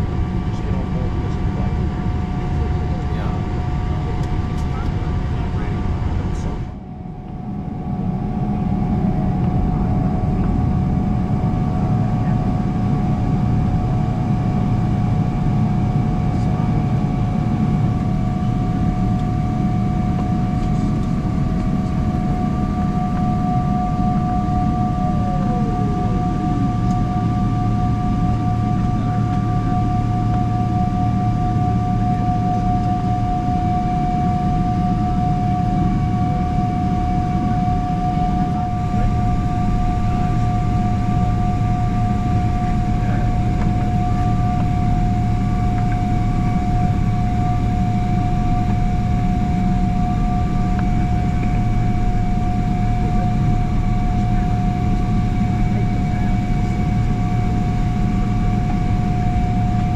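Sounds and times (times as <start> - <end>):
aircraft cabin low rumble: 0.0 - 59.9
high whine: 0.0 - 59.9.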